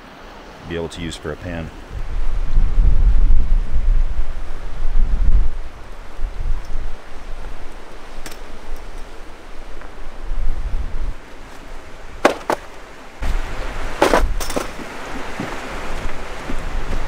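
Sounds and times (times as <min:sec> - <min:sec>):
running creek: 0:00.0 - 0:02.7, 0:03.3 - 0:17.0
wind rushing: 0:01.8 - 0:11.2
wind buffeting microphone: 0:01.8 - 0:12.4, 0:13.2 - 0:17.0
sharp knocks: 0:12.2 - 0:12.7
rustling clatter: 0:14.0 - 0:15.6.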